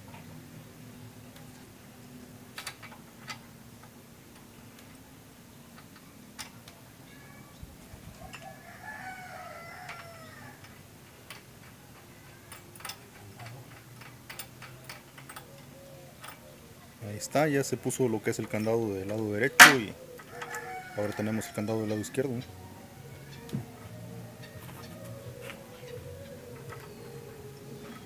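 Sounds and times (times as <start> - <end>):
rooster crowing: 8.2 - 10.8, 19.6 - 28.0.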